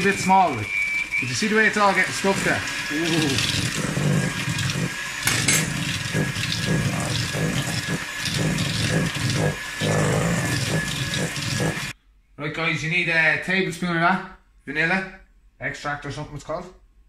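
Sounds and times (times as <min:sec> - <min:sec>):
electric hand mixer running: 0:00.0 - 0:12.0.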